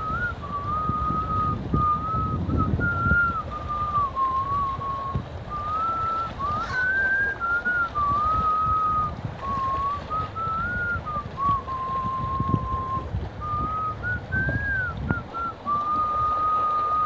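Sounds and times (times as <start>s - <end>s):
person whistling a slow tune: 0.0s - 17.0s.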